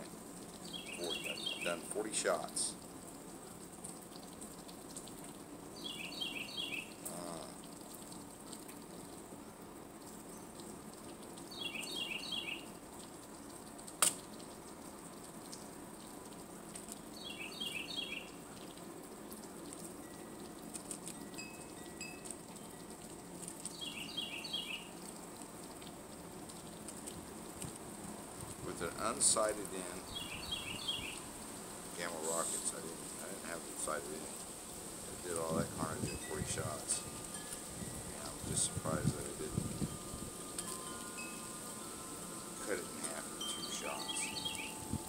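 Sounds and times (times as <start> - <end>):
faint steady hiss: 0.0 - 45.0
bird chirping call: 0.6 - 1.9, 5.8 - 7.5, 11.5 - 12.7, 17.2 - 18.4, 23.7 - 24.9, 29.8 - 31.2, 42.6 - 45.0.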